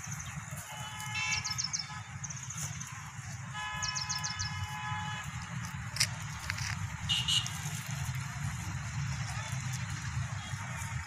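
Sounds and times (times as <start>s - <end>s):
bird chirping trills: 0.0s - 4.8s
low steady rumble: 0.0s - 11.0s
vehicle horn blasts: 0.7s - 2.2s, 3.0s - 5.4s, 7.0s - 7.6s.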